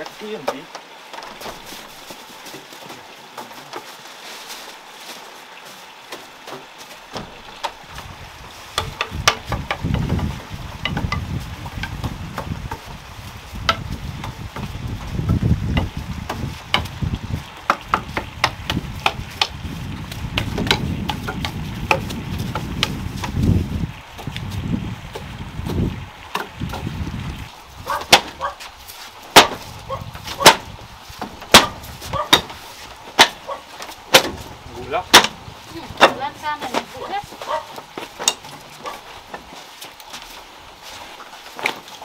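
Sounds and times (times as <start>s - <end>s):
taps and knocks on wood: 0.0s - 1.7s, 6.1s - 8.1s, 8.7s - 12.9s, 13.6s - 23.5s, 24.2s - 27.0s, 27.9s - 28.5s, 29.3s - 34.5s, 35.1s - 39.5s
broom sweeping wooden boards: 1.2s - 24.3s, 27.8s - 42.0s.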